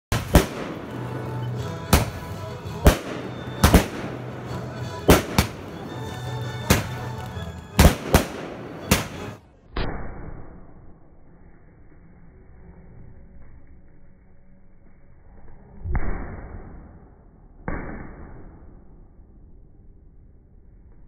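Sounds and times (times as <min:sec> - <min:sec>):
fireworks bangs: 0:00.1 - 0:09.4.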